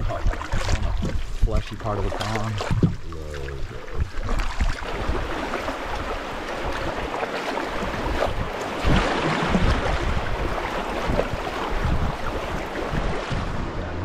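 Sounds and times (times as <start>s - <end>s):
wind buffeting microphone: 0.0s - 14.0s
river water rushing: 4.2s - 14.0s.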